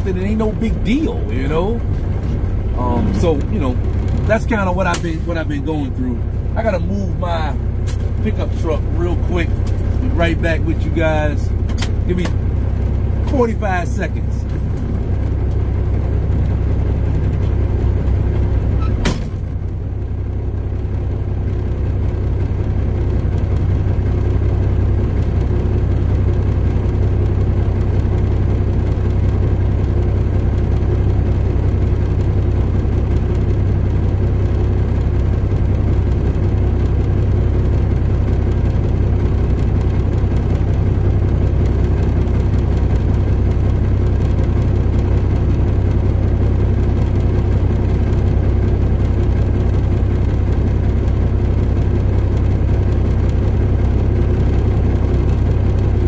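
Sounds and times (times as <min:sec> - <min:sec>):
diesel engine idling: 0:00.0 - 0:56.0
sharp thump: 0:19.0 - 0:19.4.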